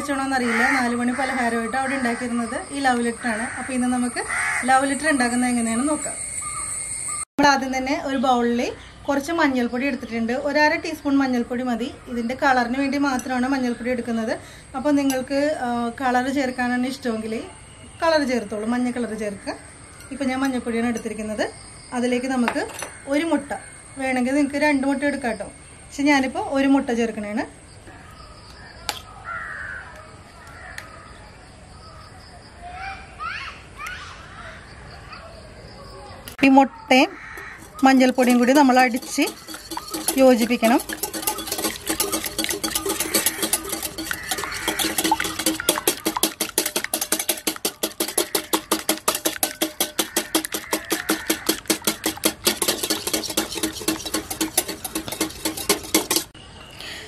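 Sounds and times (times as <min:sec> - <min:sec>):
birds chirping: 0:00.0 - 0:07.3, 0:34.8 - 0:57.0
crickets chirring: 0:00.1 - 0:07.3, 0:14.4 - 0:32.6, 0:34.3 - 0:56.8
crow cawing: 0:00.4 - 0:02.3, 0:03.4 - 0:04.7, 0:29.2 - 0:30.0, 0:37.1 - 0:38.0, 0:42.8 - 0:52.4
spoon cracking egg shell: 0:37.4 - 0:56.3
whisk clicking against glass bowl: 0:37.4 - 0:56.3.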